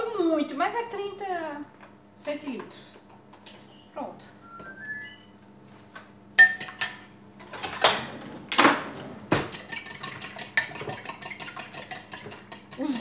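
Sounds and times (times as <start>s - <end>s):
fork beating filling in bowl: 9.5s - 13.0s.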